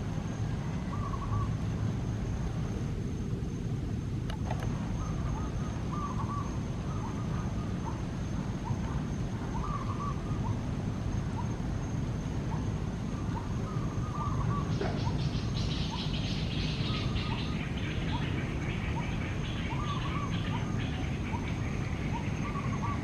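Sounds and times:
steady low rumble: 0.0 - 23.0.

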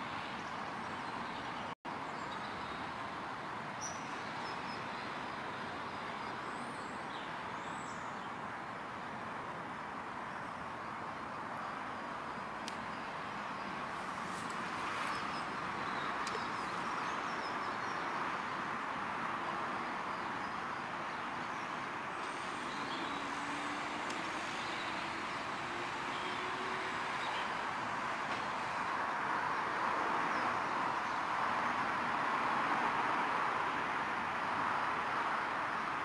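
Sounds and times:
distant road traffic hum: 0.0 - 36.0
faint passing vehicle: 21.4 - 36.0.

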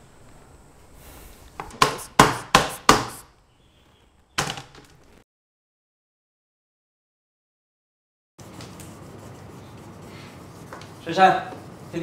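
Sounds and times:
knife chopping on cutting board: 1.6 - 3.2.

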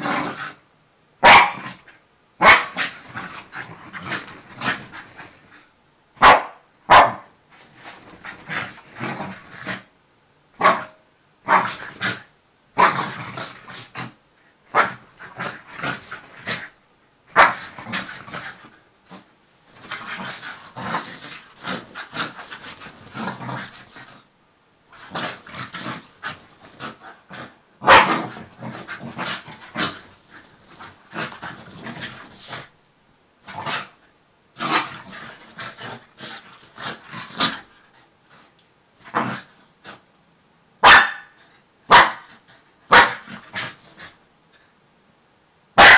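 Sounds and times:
dogs growling: 2.8 - 5.7, 17.4 - 24.2, 25.0 - 32.7, 34.6 - 37.8
dogs barking: 6.2 - 7.3, 40.8 - 41.3.

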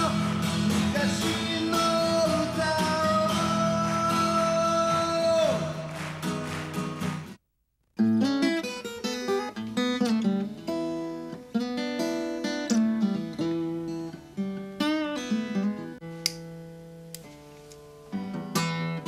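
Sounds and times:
acoustic guitar melody: 0.0 - 7.4, 8.0 - 19.0.

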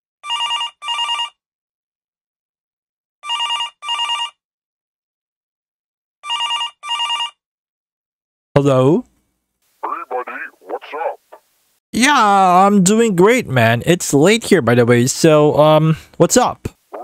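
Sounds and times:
telephone ringing: 0.2 - 1.4, 3.2 - 4.4, 6.2 - 7.4.

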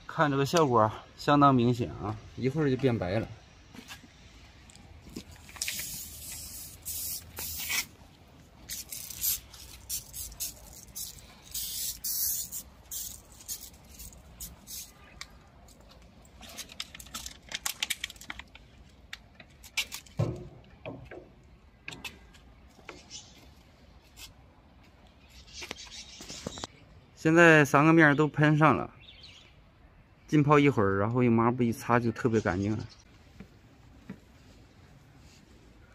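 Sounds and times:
hissing spray bursts: 5.5 - 8.0, 8.7 - 15.1.

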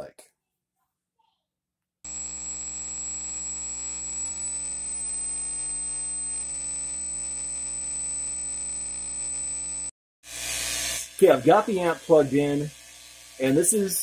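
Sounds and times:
amp hum and hiss: 2.1 - 9.9, 10.7 - 14.0.

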